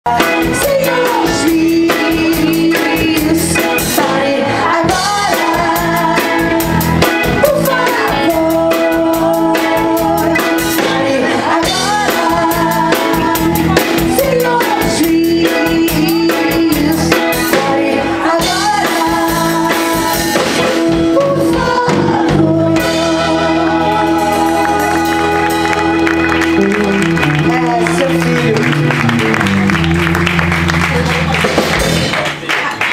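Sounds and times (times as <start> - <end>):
drums: 0.0 - 32.9
keyboard: 0.1 - 32.7
electric guitar: 0.1 - 32.9
women singing in group: 0.2 - 13.5, 14.1 - 25.4.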